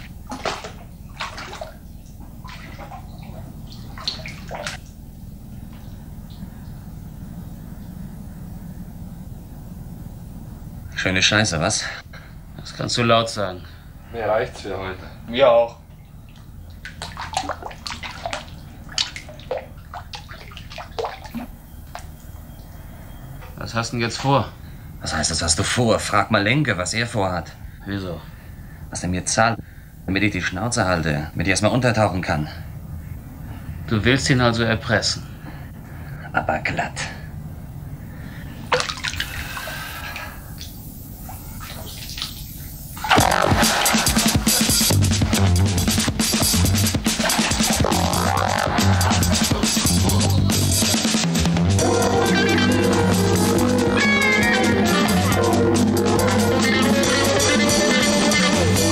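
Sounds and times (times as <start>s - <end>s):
pool water splashing: 0.0s - 6.6s, 15.4s - 22.8s, 38.7s - 58.9s
water dripping: 0.0s - 6.8s, 15.7s - 23.6s, 38.7s - 44.6s
loud band music with drums: 43.2s - 58.9s.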